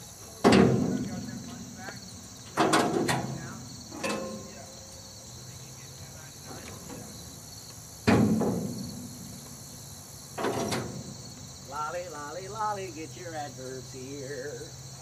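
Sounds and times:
crickets chirping: 0.0s - 15.0s
sudden loud knocks: 8.0s - 9.2s.

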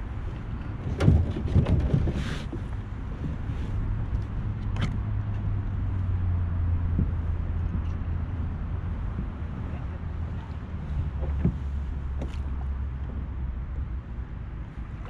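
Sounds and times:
steady low rumble: 0.0s - 15.0s
knocks and clatters of gear: 0.3s - 3.4s.

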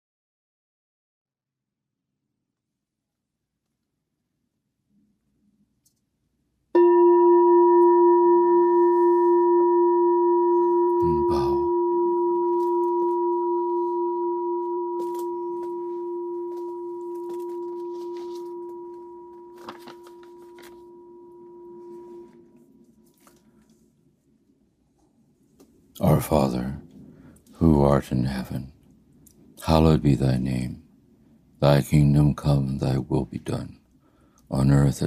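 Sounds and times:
meditation bell ringing: 6.8s - 22.8s.

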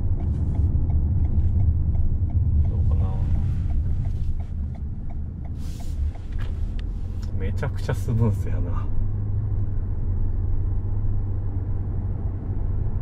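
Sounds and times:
road and tyre rumble: 0.0s - 13.0s
faint light ticks: 0.2s - 7.4s.

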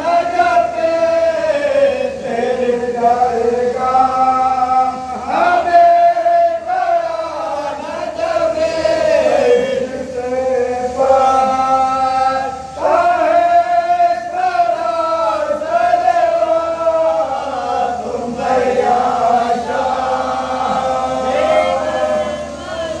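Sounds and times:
men chanting in unison: 0.0s - 23.0s.

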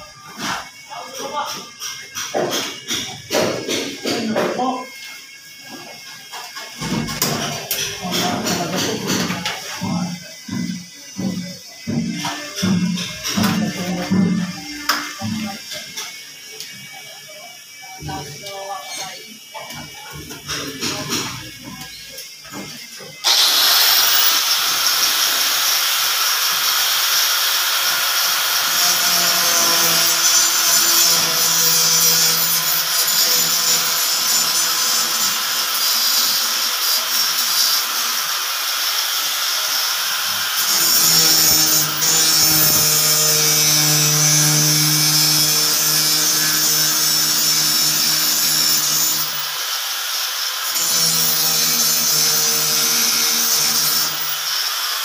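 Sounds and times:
angle grinder grinding board: 17.7s - 55.0s.

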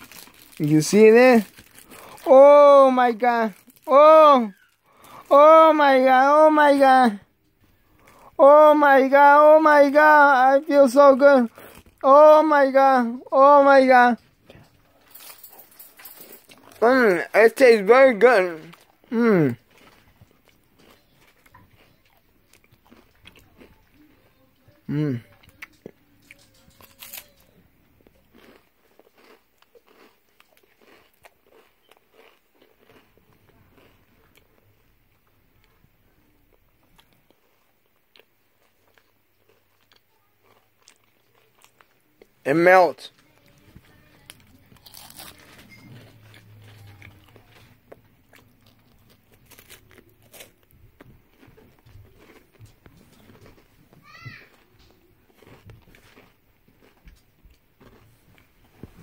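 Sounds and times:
crunching and chewing: 0.0s - 59.0s.

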